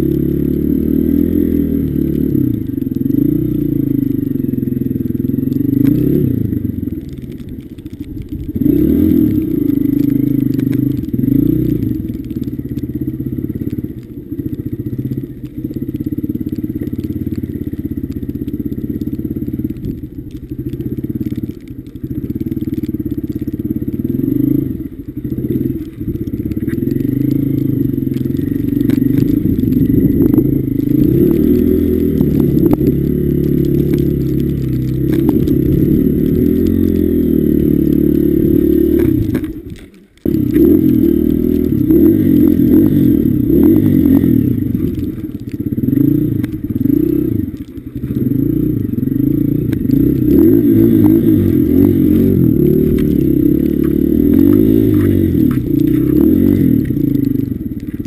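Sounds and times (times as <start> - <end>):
dirt bike engine revving: 8.5 - 12.2, 22.2 - 39.5, 40.2 - 58.0.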